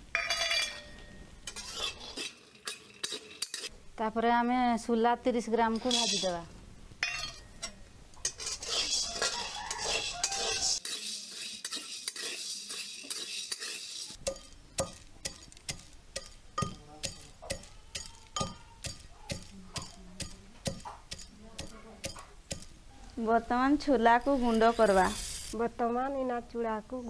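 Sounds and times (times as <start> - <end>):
metal spatula scraping seeds in wok: 0.2 - 3.8, 5.7 - 6.4, 7.0 - 22.7, 23.4 - 25.6
pestle pounding in mortar: 14.2 - 22.7.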